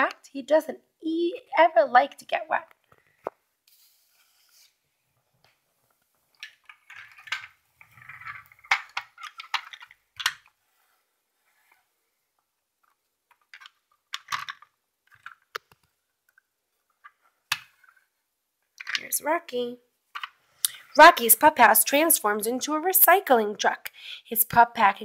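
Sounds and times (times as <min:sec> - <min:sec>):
book page turning: 0:03.7 - 0:04.8.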